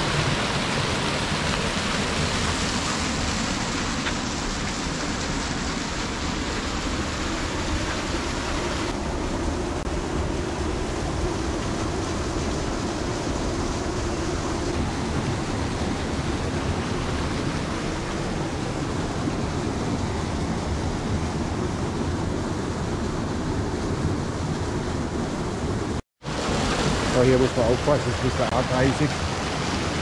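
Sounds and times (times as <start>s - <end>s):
waterfall rushing: 0.0s - 24.0s, 26.2s - 30.0s.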